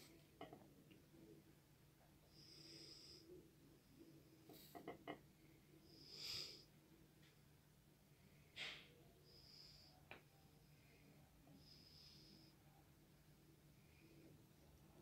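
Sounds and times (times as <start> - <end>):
soft hissing: 5.8 - 6.7.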